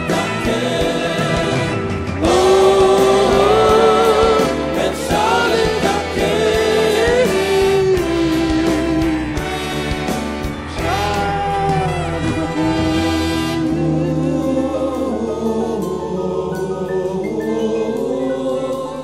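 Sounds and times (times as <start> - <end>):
drums: 0.0 - 13.7
keyboards: 0.0 - 19.0
male backing choir: 0.0 - 19.0
person singing long notes: 1.4 - 9.8, 10.8 - 15.8.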